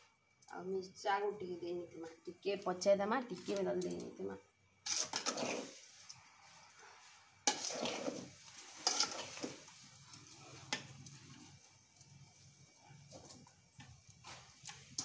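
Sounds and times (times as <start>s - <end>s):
utensil scraping steel bowl: 4.8s - 6.0s, 7.4s - 9.8s.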